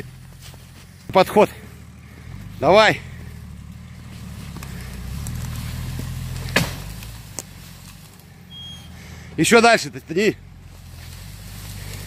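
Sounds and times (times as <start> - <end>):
vehicle engine under load: 0.0 - 12.0
tree cracking: 1.8 - 8.4.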